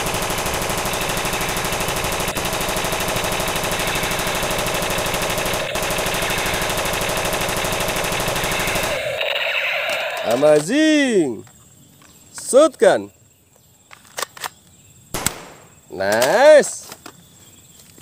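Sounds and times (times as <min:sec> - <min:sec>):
toy gun rattle of shots: 0:00.0 - 0:10.8.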